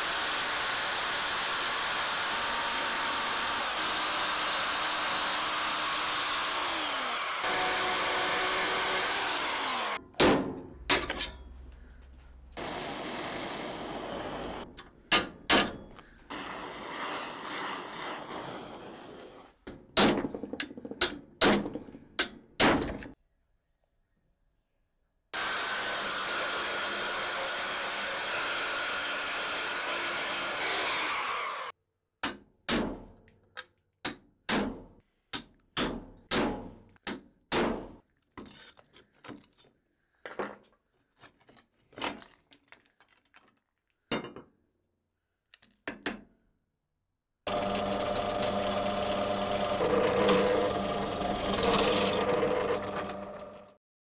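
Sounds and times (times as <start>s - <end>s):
power tool running: 0.0s - 10.0s, 12.6s - 14.6s, 25.4s - 31.7s, 47.5s - 53.8s.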